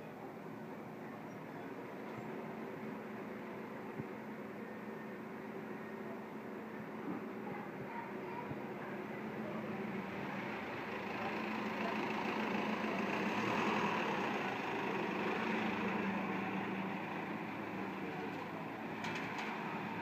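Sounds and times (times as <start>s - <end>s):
steady street hum: 0.0s - 20.0s
minibus driving past: 8.1s - 20.0s.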